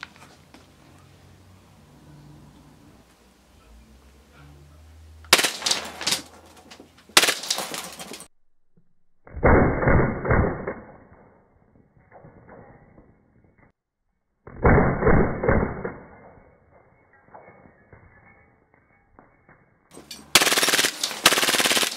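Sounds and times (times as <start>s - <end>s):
pistol shots: 5.3s - 6.3s, 7.2s - 8.0s, 20.4s - 21.9s
light bulb crashing: 5.3s - 6.5s, 7.2s - 8.3s
slowed-down bulb shattering: 5.3s - 13.7s.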